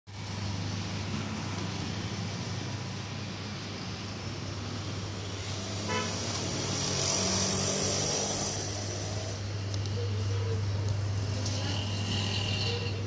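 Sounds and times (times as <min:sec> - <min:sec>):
road traffic noise: 0:00.1 - 0:13.0
vehicle horn toot: 0:05.9 - 0:06.2.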